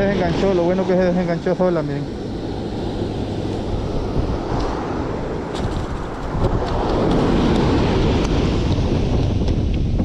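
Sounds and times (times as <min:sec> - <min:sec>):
surf washing up beach: 0:00.0 - 0:10.0
wind buffeting microphone: 0:00.0 - 0:10.0.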